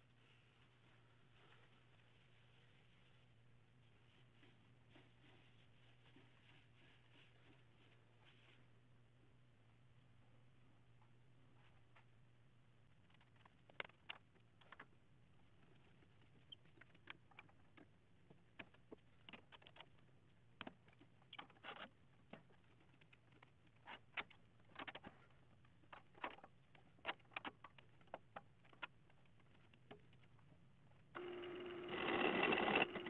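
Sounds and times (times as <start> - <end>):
faint low hum: 0.0 - 33.0
light clicks and taps of handling wood: 12.9 - 31.1.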